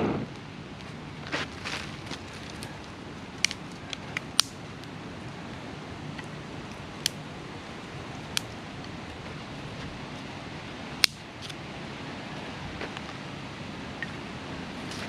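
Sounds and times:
dry twigs crackling in fire: 0:00.2 - 0:10.2.

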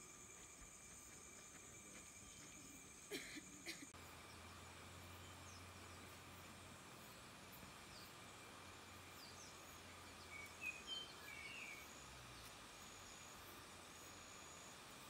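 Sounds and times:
high insect tone: 0:00.0 - 0:15.0
bird chirps: 0:09.0 - 0:12.6.

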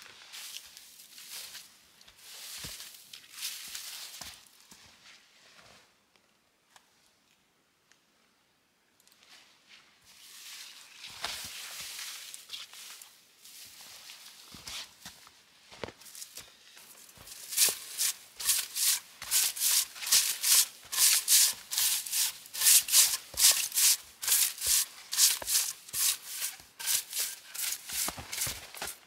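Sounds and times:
bough swishing snow off logs: 0:17.3 - 0:29.0.

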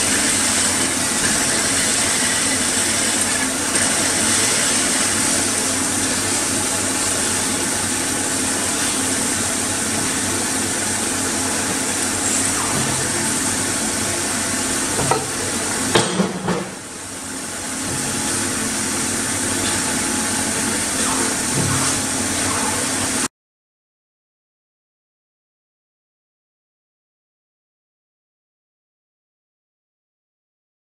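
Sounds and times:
band saw whirring: 0:00.0 - 0:16.0.

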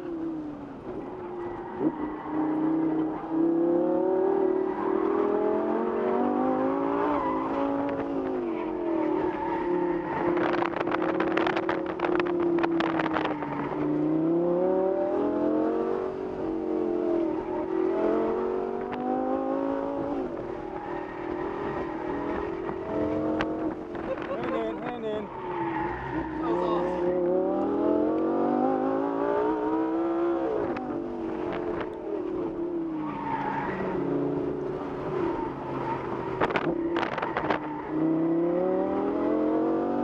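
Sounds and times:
sports car engine revving: 0:21.3 - 0:40.0.

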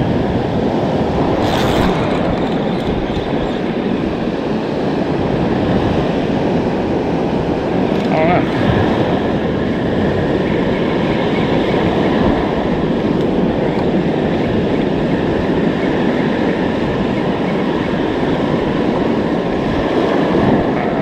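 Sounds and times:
breaking surf: 0:00.0 - 0:06.6
wind buffeting microphone: 0:00.0 - 0:21.0.

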